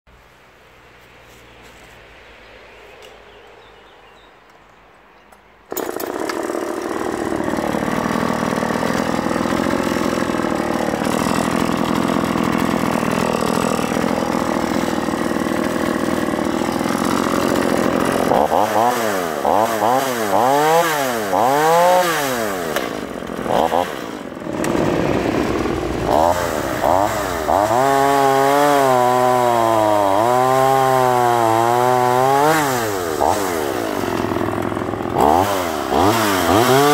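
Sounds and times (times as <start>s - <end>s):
chainsaw cutting log: 5.7s - 36.9s
chainsaw revving: 5.7s - 36.9s.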